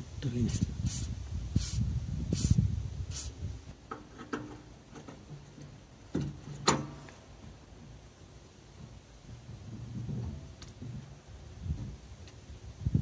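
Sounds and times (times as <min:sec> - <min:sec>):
aerosol can spraying: 0:00.5 - 0:03.4.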